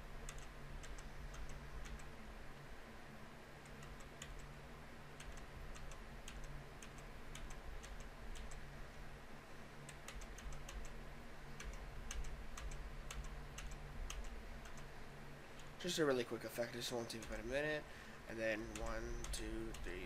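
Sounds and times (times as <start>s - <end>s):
low steady hum: 0.0s - 20.0s
computer mouse clicking: 0.2s - 2.2s, 3.6s - 4.6s, 5.2s - 8.6s, 9.8s - 11.0s, 11.6s - 14.9s, 15.6s - 15.8s, 17.1s - 17.6s, 18.7s - 20.0s.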